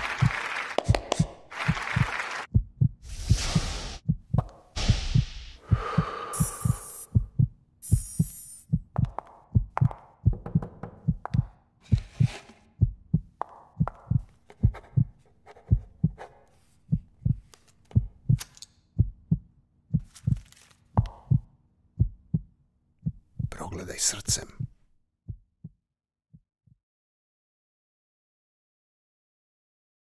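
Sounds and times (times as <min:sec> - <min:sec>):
heartbeat double thumps: 0:00.2 - 0:12.2, 0:12.8 - 0:16.2, 0:16.9 - 0:18.4, 0:19.0 - 0:20.4, 0:21.0 - 0:23.6, 0:24.2 - 0:26.8.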